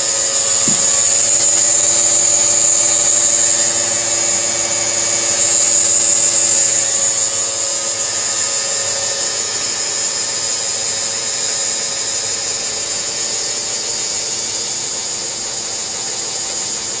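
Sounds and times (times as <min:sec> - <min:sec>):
low hum: 0:00.0 - 0:16.8
cutting machine high-pitched whir: 0:00.0 - 0:17.0.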